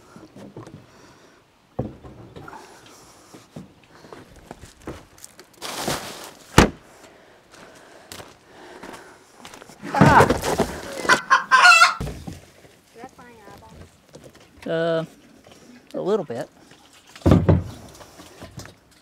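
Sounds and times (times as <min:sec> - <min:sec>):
chicken clucking: 0:10.9 - 0:12.0
rooster crowing: 0:11.2 - 0:12.0.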